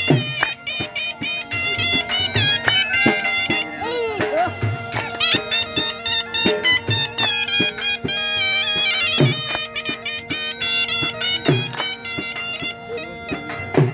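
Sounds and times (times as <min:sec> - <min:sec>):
reed wind instrument melody: 0:00.0 - 0:13.9.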